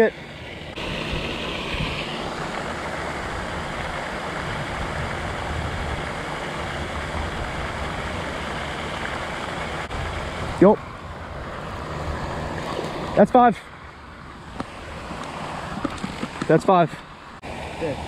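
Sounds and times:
fountain water falling: 0.7s - 13.2s, 17.4s - 18.0s.

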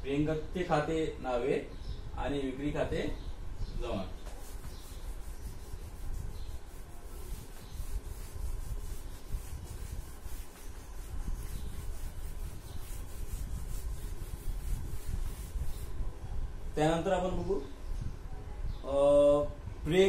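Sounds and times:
eraser rubbing on blackboard: 4.2s - 16.0s.

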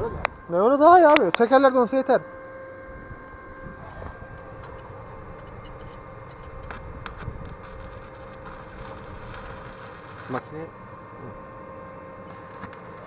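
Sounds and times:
welding arc crackling: 4.6s - 10.8s, 12.2s - 13.0s
sharp welding pops: 6.6s - 10.5s, 12.3s - 13.0s.

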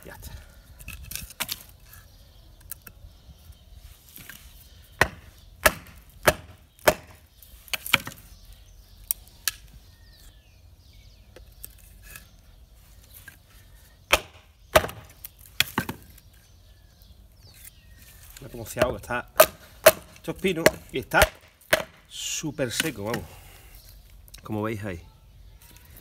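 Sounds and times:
knife chopping dry wood: 4.2s - 8.2s, 14.1s - 16.2s, 18.7s - 22.1s, 22.7s - 23.3s.

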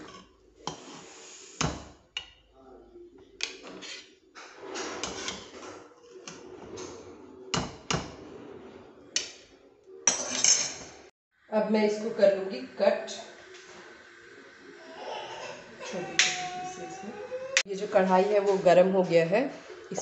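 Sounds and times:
metal spoon clanking on pots: 10.1s - 11.0s.

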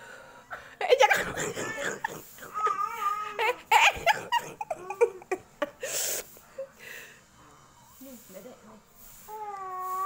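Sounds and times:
child giggling and laughing: 2.5s - 5.6s.

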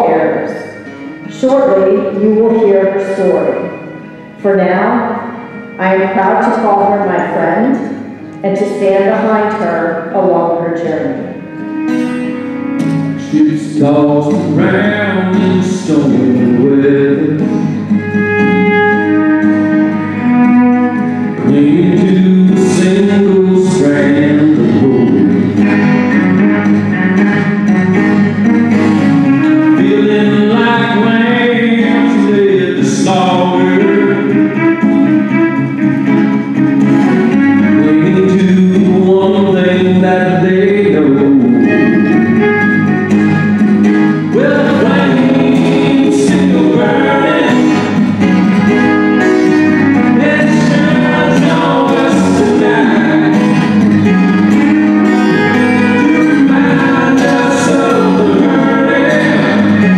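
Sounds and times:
acoustic guitar: 0.0s - 59.9s
man singing: 13.1s - 17.7s, 21.3s - 25.8s, 29.4s - 34.6s, 37.5s - 42.6s, 44.2s - 48.0s, 49.2s - 53.8s, 54.4s - 59.9s.

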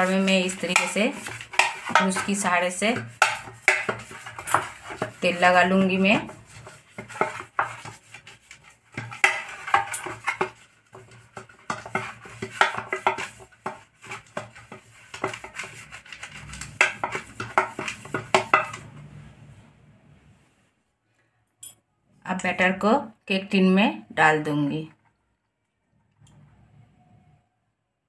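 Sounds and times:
brush and spoon scraping cake tin: 0.0s - 19.4s.

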